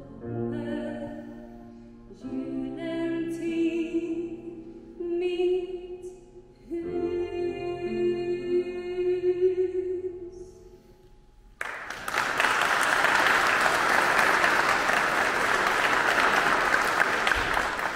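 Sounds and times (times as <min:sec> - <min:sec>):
audience applause: 0:11.6 - 0:17.9.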